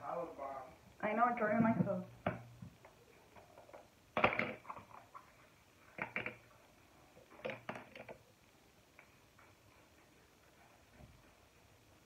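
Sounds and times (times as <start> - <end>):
small objects set on tabletop: 1.0 - 12.0.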